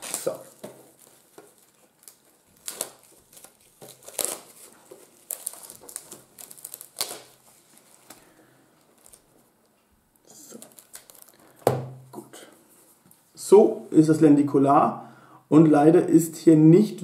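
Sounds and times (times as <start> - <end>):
plastic shrink-wrap crinkling: 0.0 - 11.8.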